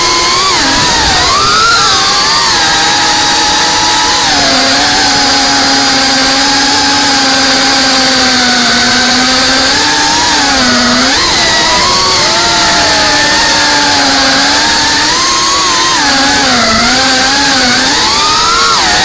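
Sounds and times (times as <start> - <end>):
quadcopter motors whining: 0.0 - 19.0.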